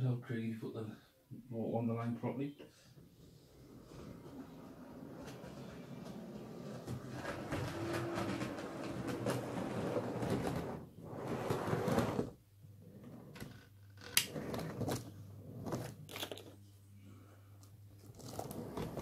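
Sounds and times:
wheels clicking over rail joints: 6.8 - 10.8.

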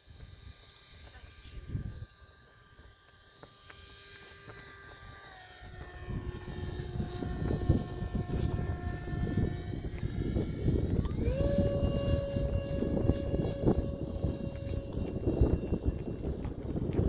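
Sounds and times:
model jet motor whining: 0.0 - 17.0
gusty low rumble: 5.8 - 17.0.

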